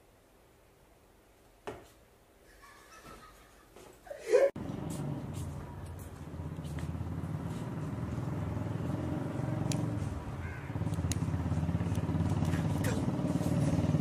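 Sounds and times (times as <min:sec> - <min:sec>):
vehicle engine humming: 0:04.6 - 0:14.0.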